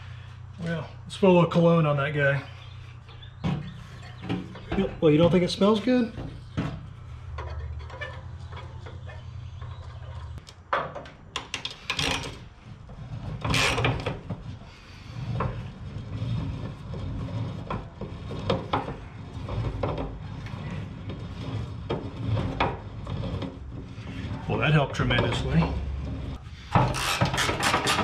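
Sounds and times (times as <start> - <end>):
metal clanking: 2.6 - 14.6.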